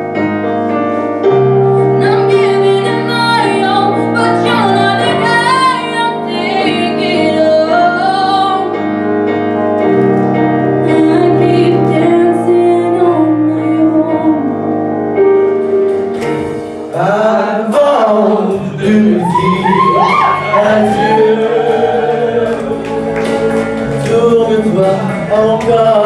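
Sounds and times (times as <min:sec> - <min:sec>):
woman singing into microphone: 0:02.0 - 0:08.8, 0:10.8 - 0:14.8
man singing: 0:16.9 - 0:26.0.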